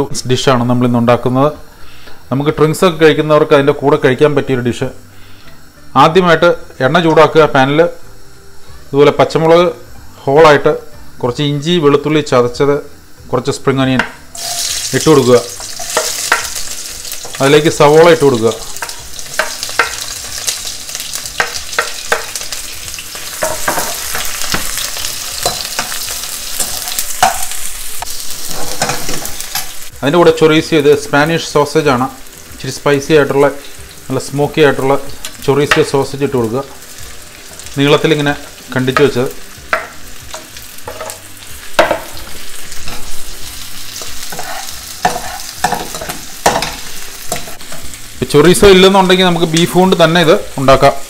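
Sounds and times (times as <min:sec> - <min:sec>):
vegetables sizzling in hot oil: 0:00.0 - 0:51.0
metal tongs clicking and scraping pan: 0:15.6 - 0:17.4, 0:18.8 - 0:20.6, 0:23.3 - 0:29.8, 0:42.8 - 0:43.2, 0:43.9 - 0:47.9
spatula scraping a pan: 0:42.2 - 0:47.9.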